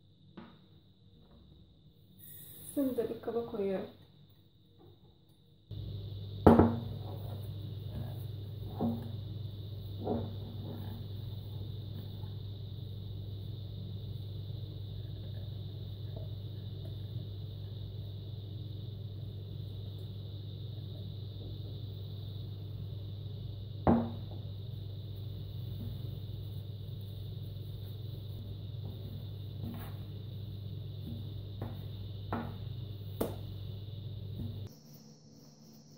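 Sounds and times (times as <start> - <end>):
steady low hum: 0.0 - 35.9
glass bowl knocking on countertop: 6.5 - 6.9, 23.9 - 24.3.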